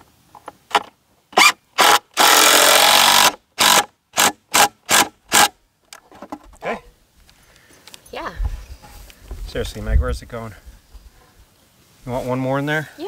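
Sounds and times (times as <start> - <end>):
power drill pulsing: 1.4 - 5.5.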